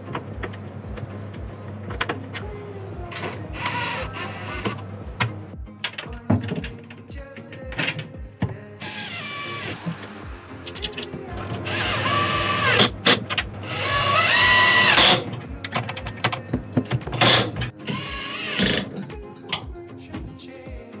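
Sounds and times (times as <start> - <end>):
cordless drill running: 11.6 - 13.0, 13.6 - 15.2.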